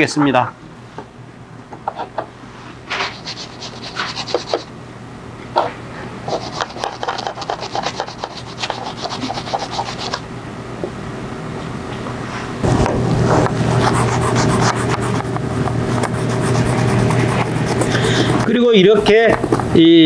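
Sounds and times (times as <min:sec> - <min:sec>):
dauber scratching on leather: 0:03.1 - 0:04.6, 0:06.3 - 0:10.2, 0:13.7 - 0:15.2, 0:16.0 - 0:18.5.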